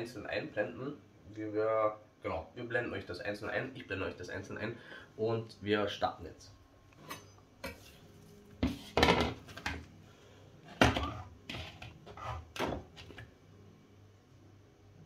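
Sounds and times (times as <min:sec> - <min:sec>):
kitchen things knocking and clattering: 0:08.6 - 0:09.9, 0:10.7 - 0:13.2.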